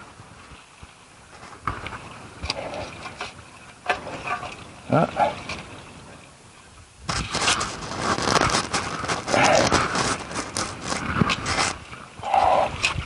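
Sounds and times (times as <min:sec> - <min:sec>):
digging tool scraping soil: 0:07.1 - 0:11.8.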